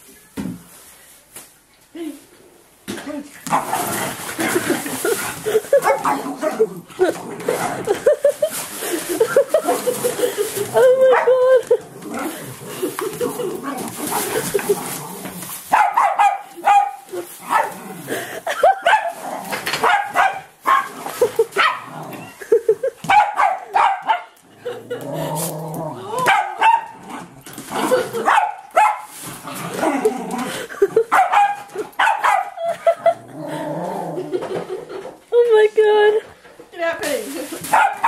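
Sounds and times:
small dogs barking and yipping: 10.8 - 11.6, 15.7 - 17.8, 19.8 - 21.9, 23.0 - 24.4, 26.2 - 27.0, 28.2 - 29.2, 31.0 - 32.7, 37.7 - 38.0.

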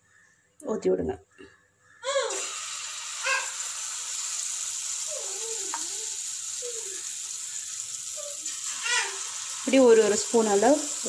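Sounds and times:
batter sizzling in ghee: 2.3 - 11.0.

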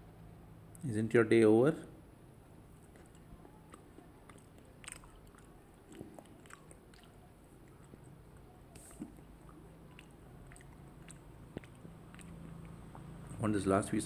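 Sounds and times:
mouth clicks: 2.8 - 13.4
person chewing: 2.8 - 13.4.

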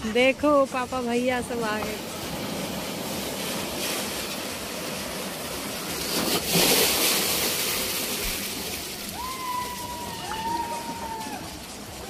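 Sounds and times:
water rushing and splashing: 0.0 - 12.0.

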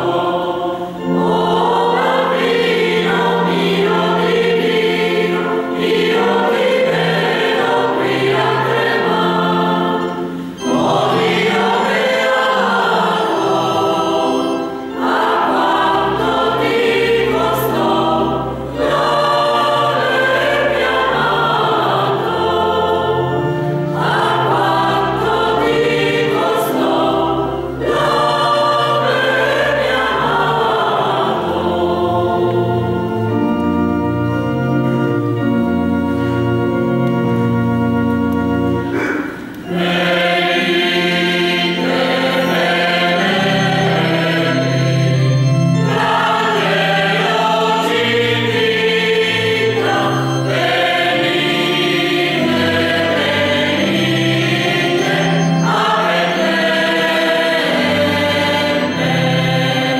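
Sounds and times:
mixed choir singing: 0.0 - 33.7, 38.8 - 59.9.

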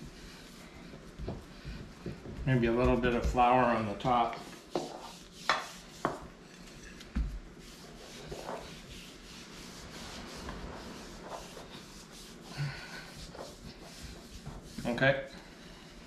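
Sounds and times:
hands patting dough: 0.0 - 6.4.

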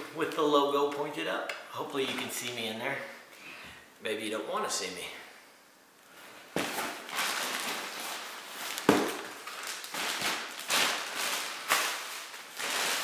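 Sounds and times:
plastic wrapping crinkling: 6.5 - 13.0.

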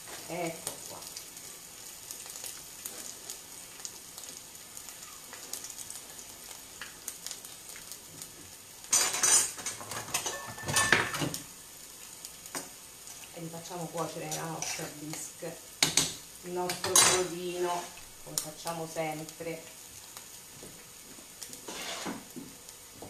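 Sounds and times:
faint sizzling in a frying pan: 0.0 - 23.0
clatter of plate and pot: 8.9 - 11.4.

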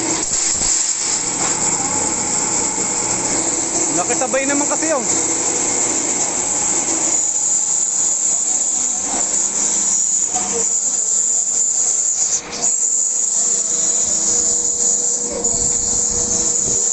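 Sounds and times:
faint electric motor hum: 0.0 - 16.9
feed mixer churning with loud hiss: 0.0 - 16.9.

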